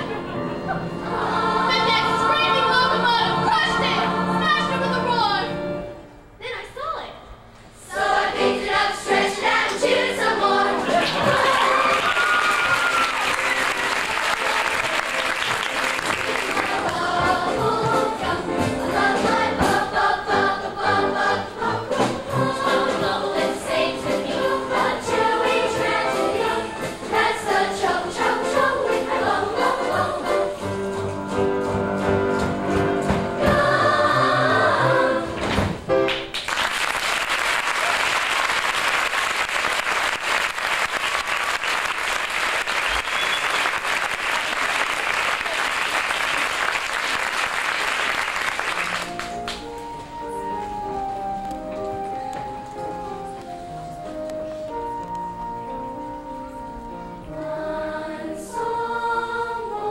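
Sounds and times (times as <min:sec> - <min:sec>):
choir singing: 0:00.0 - 0:05.8, 0:07.8 - 0:12.2, 0:12.8 - 0:35.5, 0:57.0 - 0:59.9
audience applause: 0:10.9 - 0:17.0, 0:36.1 - 0:49.6.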